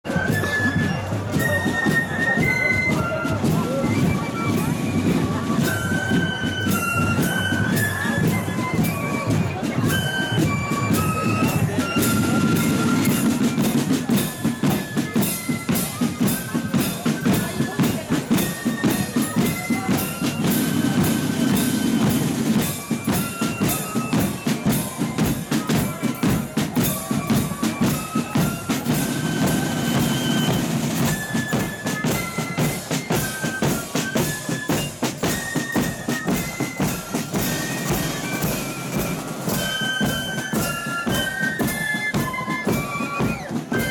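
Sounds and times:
flutes playing march melody: 0.0 - 43.9
snare drums: 0.0 - 43.9
bass drum march beat: 36.3 - 43.9.

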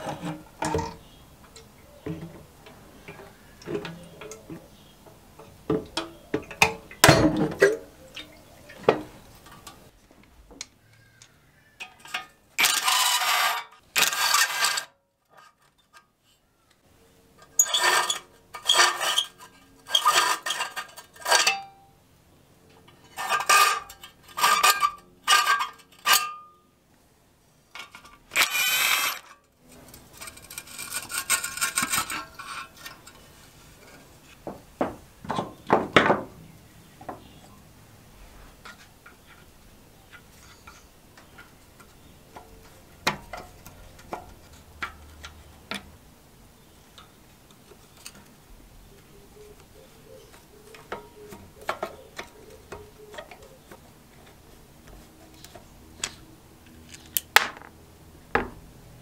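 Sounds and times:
metal parts and tools clinking: 11.8 - 16.1, 17.4 - 21.9, 22.8 - 26.6, 27.7 - 34.0.

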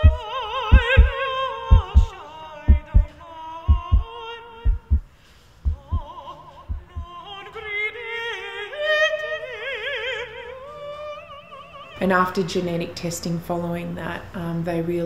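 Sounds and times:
heartbeat thumps: 0.0 - 2.1, 2.7 - 6.1, 6.7 - 7.1
woman singing operatically: 0.0 - 5.0, 5.8 - 12.6.

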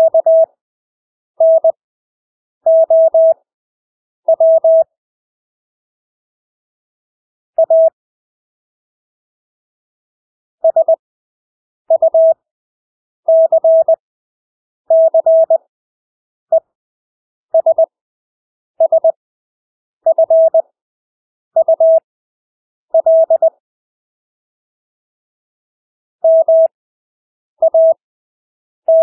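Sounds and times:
morse code beeps: 0.0 - 0.5, 1.4 - 1.8, 2.7 - 3.4, 4.3 - 4.9, 7.6 - 8.0, 10.6 - 11.0, 11.9 - 12.4, 13.3 - 14.0, 14.9 - 15.6, 17.6 - 17.9, 18.8 - 19.2, 20.1 - 20.6, 21.6 - 22.0, 23.0 - 23.5, 26.2 - 26.7, 27.6 - 28.0.

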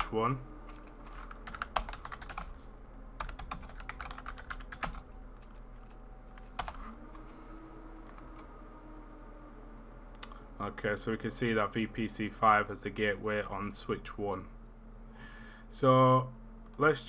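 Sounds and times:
computer keyboard typing: 0.7 - 2.6, 3.2 - 7.3.

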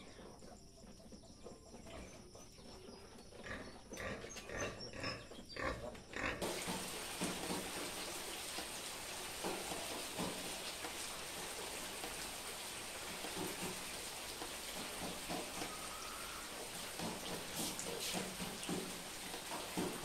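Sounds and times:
steady rain: 6.4 - 20.0.

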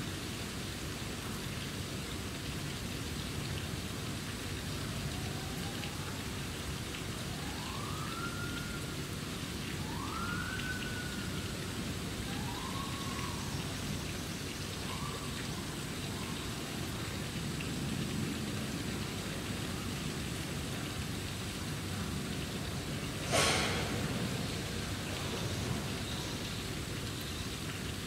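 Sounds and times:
rain hissing: 1.8 - 28.0
faint siren wail: 4.6 - 23.3, 23.9 - 27.6.

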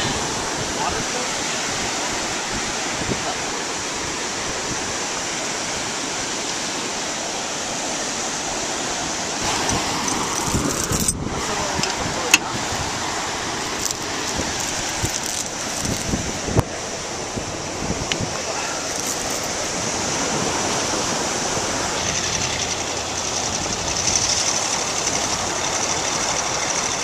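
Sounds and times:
ocean surf: 0.0 - 27.0
wind on microphone: 0.0 - 27.0
steel chain clinking and rattling: 9.5 - 11.2, 13.6 - 16.4, 18.7 - 19.8.

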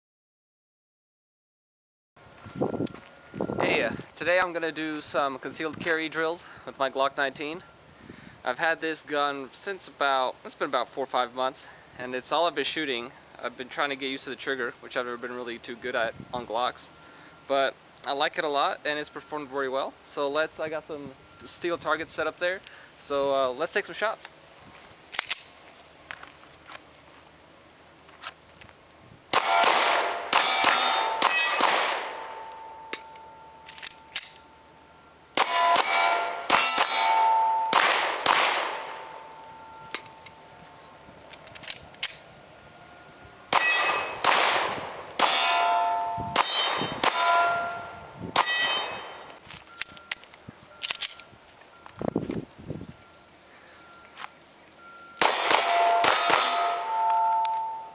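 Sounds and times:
pistol shots: 29.3 - 33.1, 35.4 - 39.2, 43.5 - 49.3, 55.2 - 57.7
steel targets clanging: 29.3 - 40.6, 43.5 - 44.4, 45.2 - 49.9, 55.2 - 57.9.

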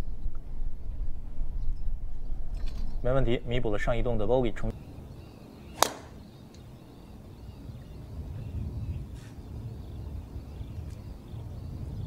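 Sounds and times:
low outdoor rumble: 0.0 - 12.0
golf club striking ball: 5.7 - 6.3.

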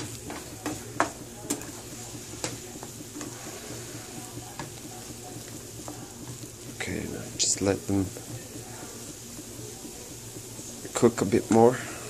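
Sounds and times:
spatula knocking against pan: 0.0 - 1.7
food sizzling in a frying pan: 0.0 - 12.0
spatula stirring and scraping: 0.0 - 12.0.

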